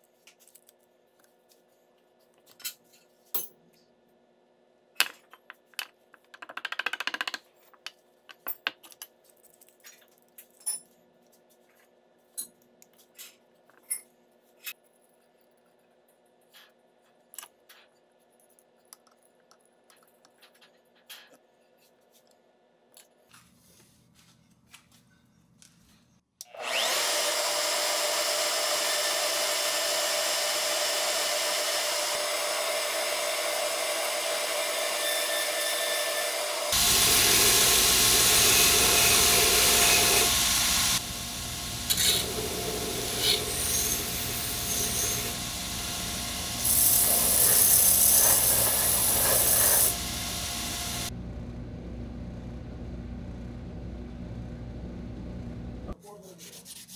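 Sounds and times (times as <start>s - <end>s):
power tool running: 26.4s - 51.1s
belt grinder grinding steel blade: 32.9s - 51.1s.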